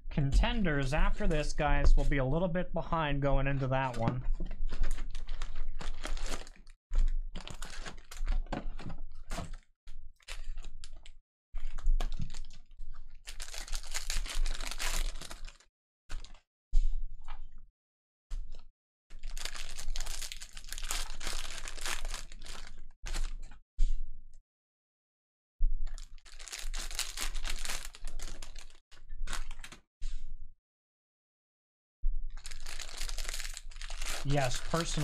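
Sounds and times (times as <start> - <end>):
plastic wrapper crinkling: 4.6 - 6.8, 7.4 - 8.4, 11.7 - 12.6, 13.3 - 15.6, 19.2 - 23.5, 25.9 - 29.8, 32.4 - 35.0
cards shuffling: 32.7 - 35.0.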